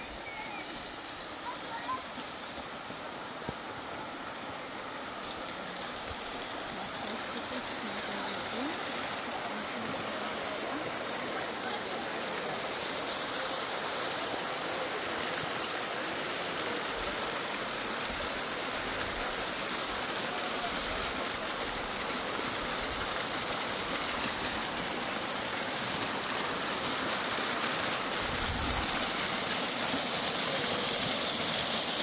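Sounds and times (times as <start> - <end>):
water rushing over waterfall: 0.0 - 32.0.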